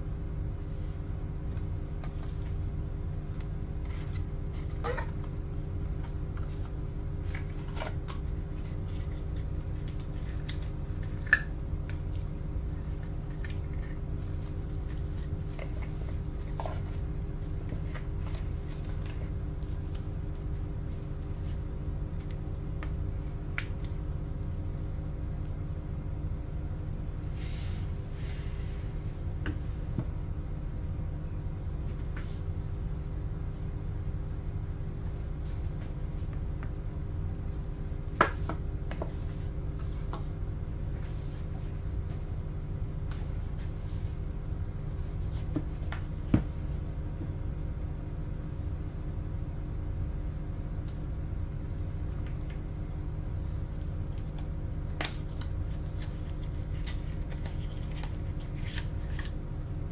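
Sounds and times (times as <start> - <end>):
steady low hum: 0.0 - 59.9
paper rustling: 55.0 - 59.4.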